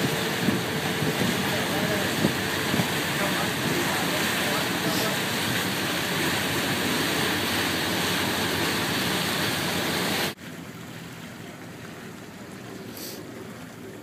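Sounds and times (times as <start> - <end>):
wind rushing: 0.0 - 4.6
water rushing past boat: 0.0 - 14.0.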